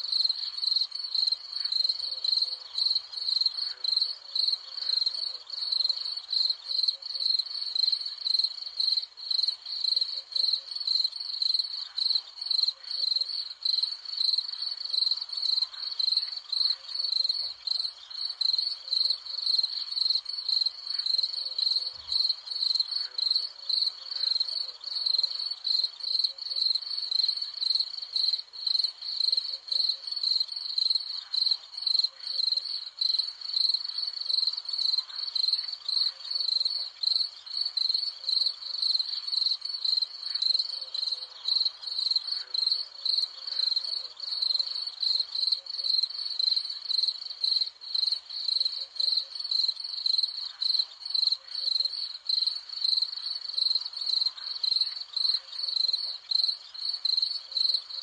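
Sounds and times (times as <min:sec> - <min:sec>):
crickets chirping: 0:00.0 - 0:58.0.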